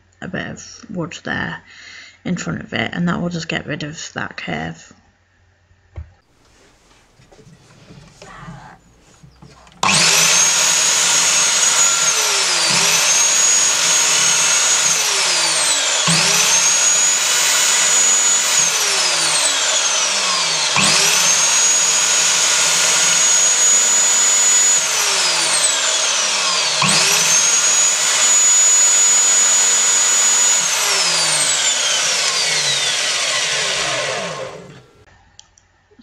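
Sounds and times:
mitre saw whining: 6.4 - 35.1.

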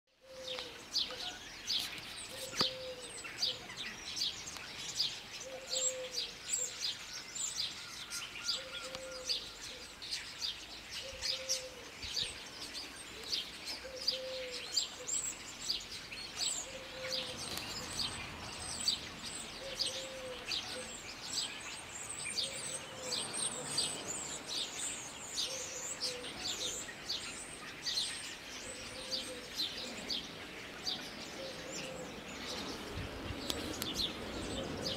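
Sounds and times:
small birds chirping: 0.1 - 34.9
low bird call: 0.2 - 1.4, 2.3 - 3.8, 13.2 - 15.3, 19.6 - 21.0.

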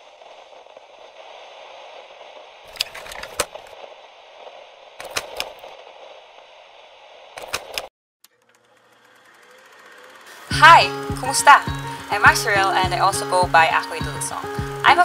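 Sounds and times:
thin hiss with crackle: 0.0 - 7.8, 9.9 - 15.0
sharp clicks: 5.0 - 5.7, 7.4 - 8.6.

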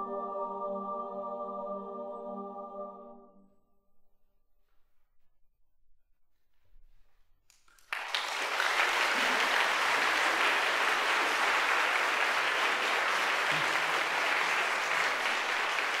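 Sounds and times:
audience applause: 7.8 - 16.0.

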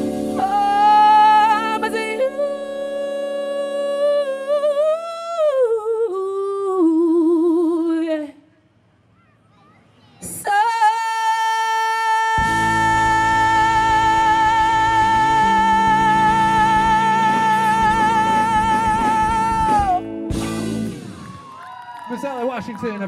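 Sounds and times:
woman singing long held notes: 0.3 - 8.4, 10.4 - 20.0.

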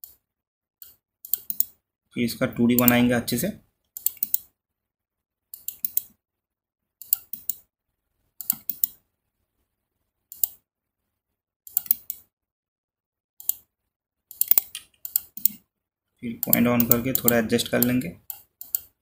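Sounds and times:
computer mouse clicking: 0.0 - 0.2, 0.8 - 1.8, 2.7 - 3.1, 3.9 - 4.5, 5.6 - 6.1, 7.0 - 7.7, 8.4 - 9.0, 10.3 - 10.6, 11.7 - 12.3, 13.4 - 13.7, 14.3 - 15.6, 16.4 - 19.0.

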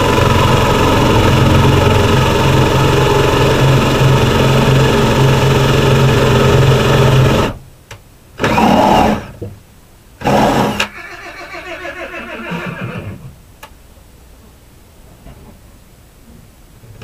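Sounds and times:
cordless drill running: 0.0 - 7.6
horse whinnying: 10.2 - 13.4.

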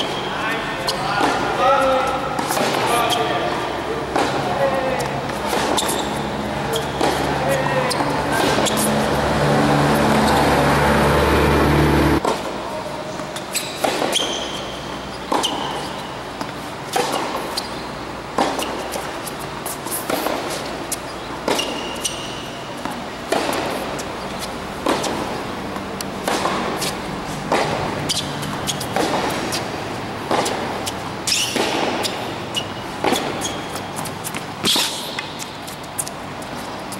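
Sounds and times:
tennis ball bouncing: 0.0 - 12.6, 13.2 - 36.9
racquets striking tennis ball: 0.0 - 36.9
loud low hum: 9.0 - 12.2.

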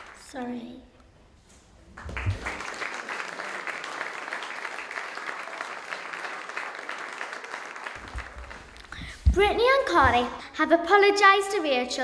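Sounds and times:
audience applauding: 0.0 - 0.3, 1.9 - 9.1.

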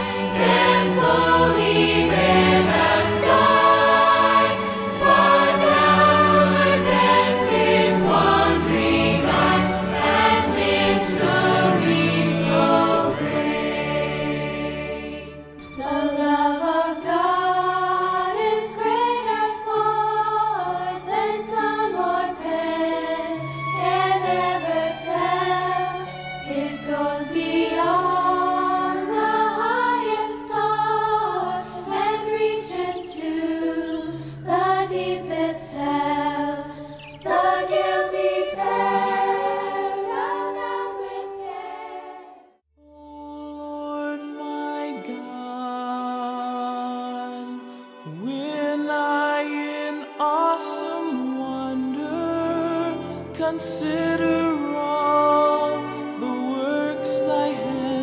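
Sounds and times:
choir singing slow melody: 0.0 - 42.6, 46.6 - 58.0.

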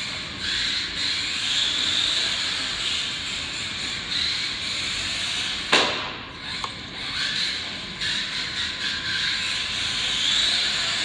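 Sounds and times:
toy car motor whine: 0.0 - 5.7, 6.4 - 11.0
sharp knock: 5.7 - 6.2.

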